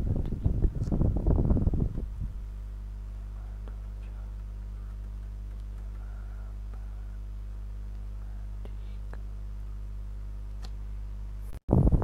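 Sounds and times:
steady low hum: 0.0 - 12.0
person speaking: 8.0 - 9.4.

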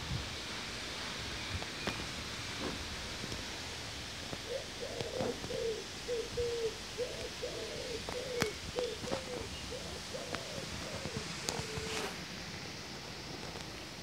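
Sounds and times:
wind hiss on microphone: 0.0 - 14.0
pigeon cooing: 4.4 - 12.2.

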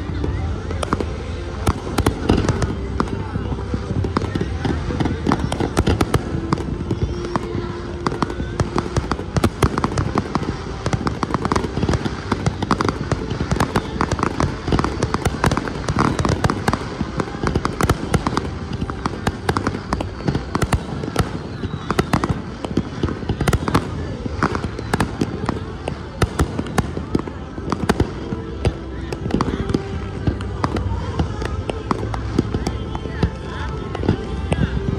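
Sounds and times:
fireworks bangs and crackles: 0.0 - 34.9.

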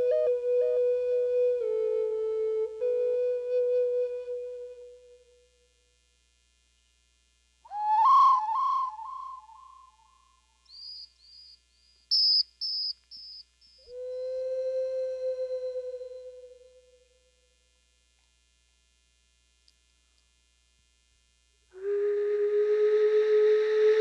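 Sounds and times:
flute notes: 0.0 - 5.6, 7.7 - 10.2, 13.8 - 17.1, 21.7 - 24.0
high whistled peeps: 10.7 - 14.3.

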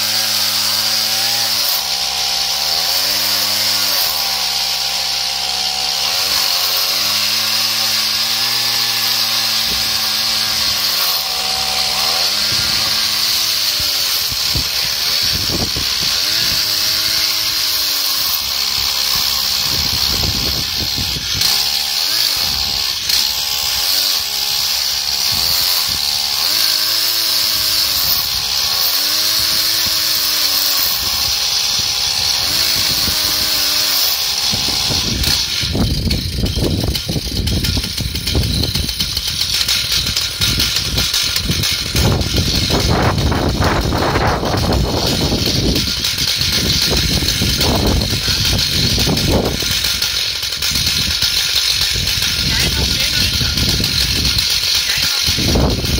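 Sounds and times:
chainsaw cutting log: 0.0 - 55.9.

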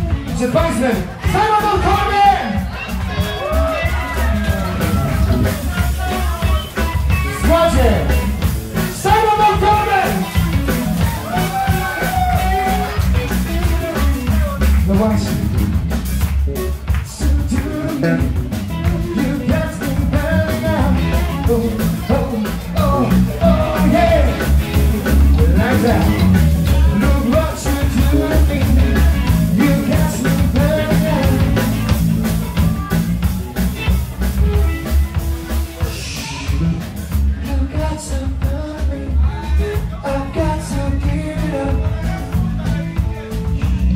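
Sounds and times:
live rock band playing: 0.0 - 43.9.

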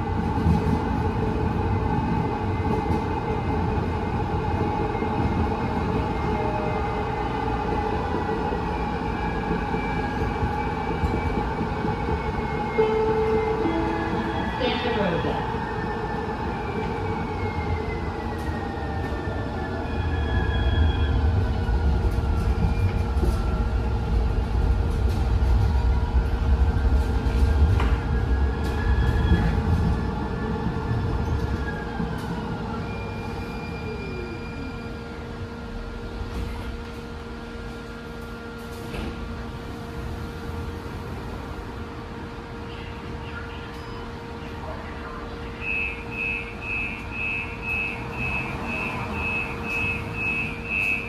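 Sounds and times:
steel wheels rumbling on rails: 0.0 - 41.6
door warning beeps: 45.5 - 51.0.

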